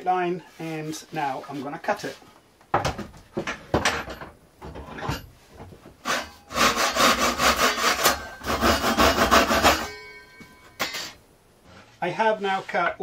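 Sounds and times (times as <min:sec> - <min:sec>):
handsaw cutting wood: 0:06.1 - 0:09.8.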